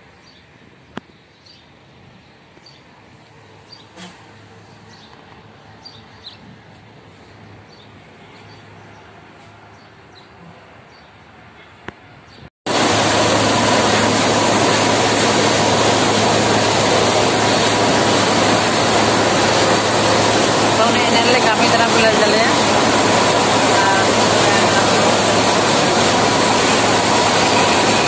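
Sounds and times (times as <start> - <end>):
mill machinery running: 12.7 - 28.0.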